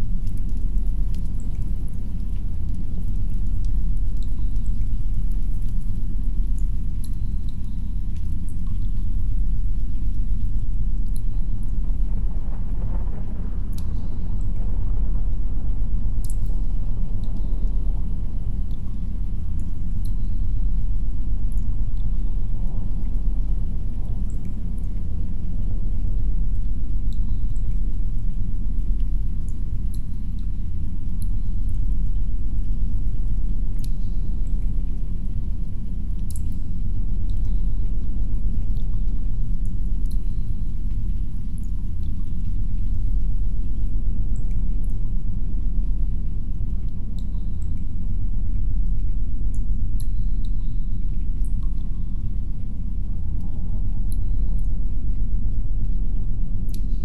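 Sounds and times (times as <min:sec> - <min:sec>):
faint high drips: 0:00.0 - 0:57.0
muffled low rumble of wind: 0:00.0 - 0:57.0
faint high ticks: 0:06.5 - 0:08.9, 0:27.0 - 0:28.0, 0:33.7 - 0:43.0, 0:44.3 - 0:45.0, 0:46.5 - 0:52.8, 0:56.6 - 0:57.0
muffled wind rumble: 0:08.9 - 0:29.5.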